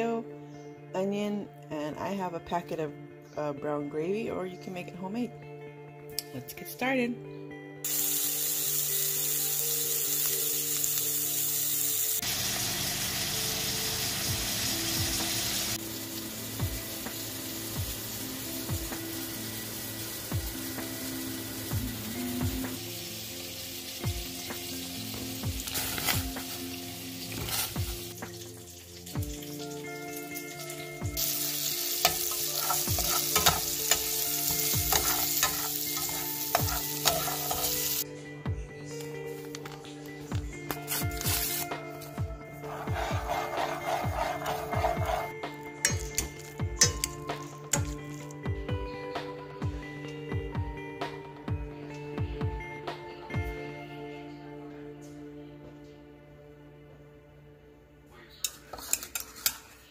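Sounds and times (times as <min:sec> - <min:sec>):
background music: 0:00.0 - 0:59.9
meat patty sizzling in frying pan: 0:07.8 - 0:38.0, 0:40.9 - 0:41.6
potato peeler scraping: 0:32.0 - 0:33.7, 0:34.9 - 0:38.0, 0:42.6 - 0:45.4.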